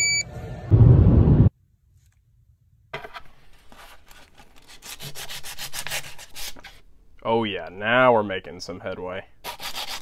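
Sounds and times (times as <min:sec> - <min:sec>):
loud low rumble: 0:00.3 - 0:01.5
sandpaper rubbing on plastic: 0:03.6 - 0:06.8, 0:09.4 - 0:10.0.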